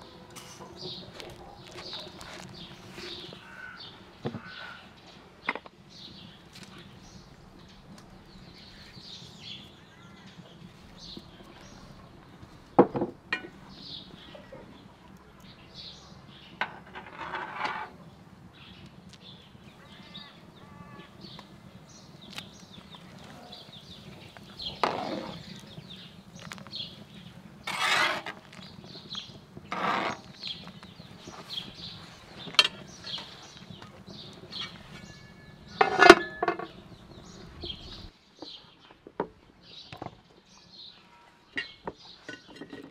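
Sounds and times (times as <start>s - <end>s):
birds chirping: 0.0s - 42.9s
metal lid clanking on pot: 13.3s - 13.6s, 34.6s - 36.8s.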